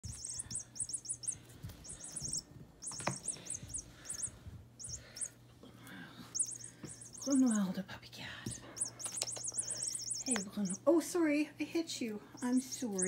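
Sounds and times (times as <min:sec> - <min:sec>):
electronic bird chirps: 0:00.0 - 0:05.4, 0:06.3 - 0:07.5, 0:08.8 - 0:10.8, 0:12.4 - 0:13.0.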